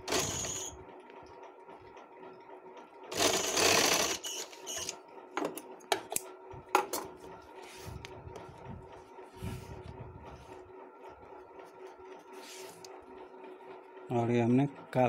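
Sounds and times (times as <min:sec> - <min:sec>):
sewing machine stitching: 0:00.0 - 0:00.8, 0:03.1 - 0:05.0.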